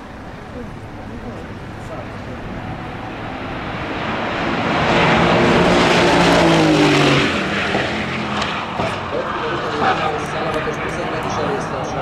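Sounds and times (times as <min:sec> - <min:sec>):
race car engine passing: 0:00.0 - 0:12.0.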